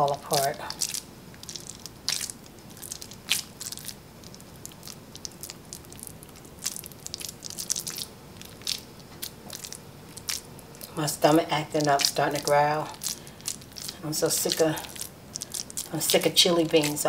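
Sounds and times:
hands pressing crackling patty mixture: 0.0s - 17.0s.

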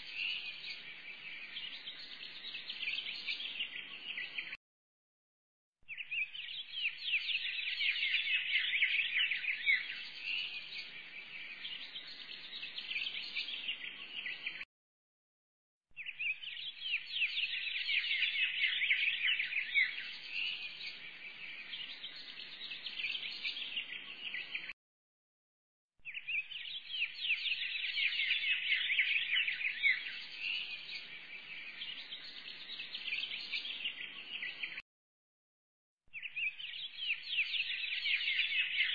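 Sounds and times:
birds chirping and twittering: 0.0s - 4.6s, 5.9s - 14.6s, 16.0s - 24.7s, 26.0s - 34.8s, 36.1s - 38.9s.

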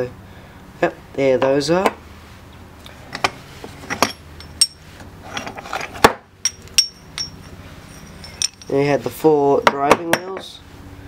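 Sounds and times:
metal parts clinking on table: 3.1s - 8.8s
metal scrape: 3.2s - 6.0s.

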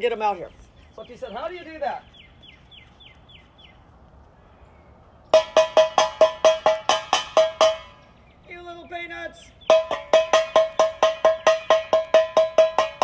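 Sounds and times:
sharp ringing knocks: 5.3s - 8.2s, 9.6s - 13.0s.

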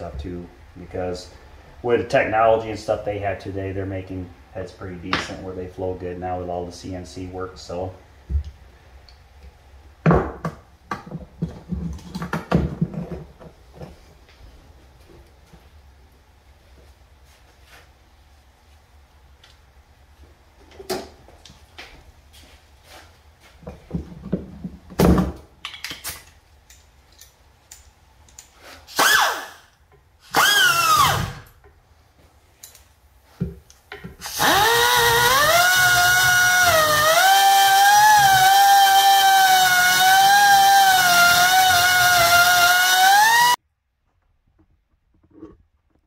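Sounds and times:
die grinder whining: 30.3s - 31.4s, 34.2s - 43.6s.

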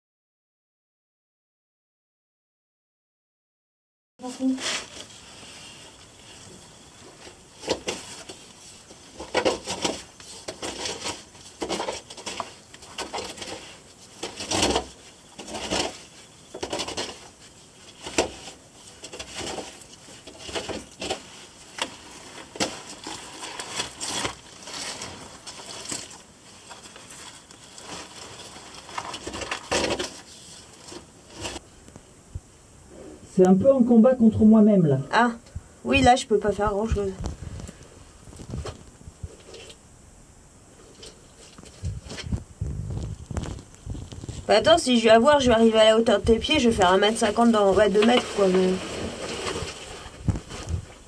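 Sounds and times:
clothing scraping against rock and mud: 13.0s - 31.6s, 43.0s - 51.0s.

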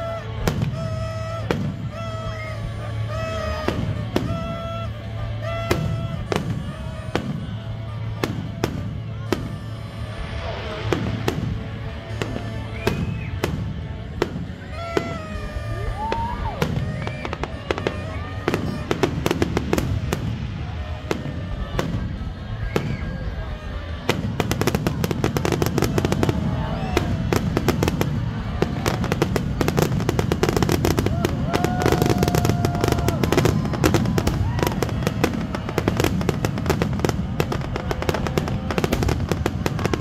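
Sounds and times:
firework bangs and crackle: 0.0s - 40.0s.

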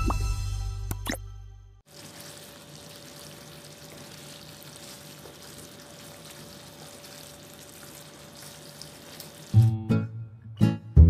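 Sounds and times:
wooden spatula stirring: 1.9s - 9.6s
curry sizzling in a pan: 1.9s - 9.8s.

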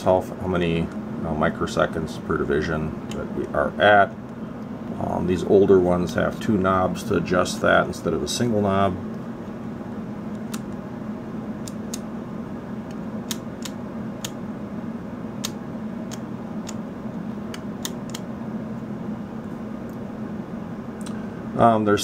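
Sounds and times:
fan hum: 0.0s - 22.0s
rotary switch clicking: 10.3s - 10.8s, 11.6s - 12.1s, 12.8s - 14.4s, 15.4s - 16.8s, 17.5s - 18.3s.

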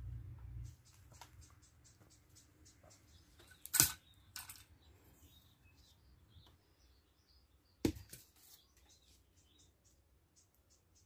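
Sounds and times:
faint bird chirps: 0.0s - 11.0s
sharp clicks of trap frame: 3.6s - 4.7s.

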